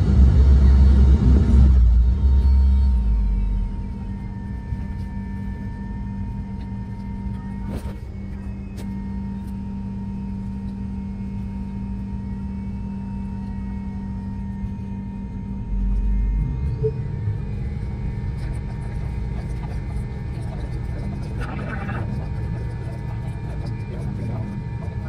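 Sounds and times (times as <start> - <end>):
deep rumble: 0.0 - 9.3, 10.0 - 25.0
jet engines droning: 0.0 - 25.0.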